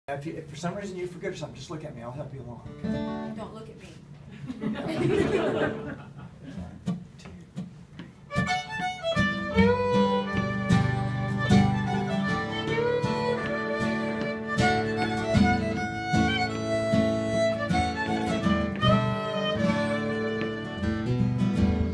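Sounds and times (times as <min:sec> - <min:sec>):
acoustic guitar accompaniment: 0:02.6 - 0:04.2, 0:05.0 - 0:21.9
fiddle melody: 0:08.3 - 0:21.9.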